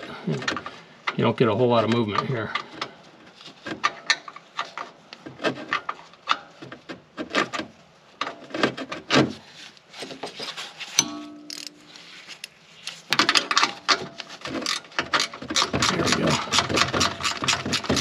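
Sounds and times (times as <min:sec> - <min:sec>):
metallic clink: 0:11.0 - 0:11.9
wrench clicking and scraping on steel: 0:11.0 - 0:11.9, 0:13.3 - 0:18.0.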